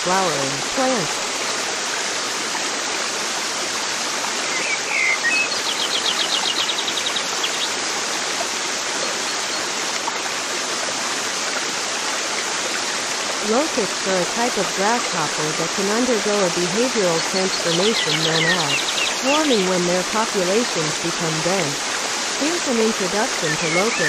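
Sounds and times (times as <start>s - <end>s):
flowing water rushing: 0.0s - 24.0s
bird chirp and trill: 4.4s - 7.8s, 17.0s - 20.0s, 22.6s - 24.0s.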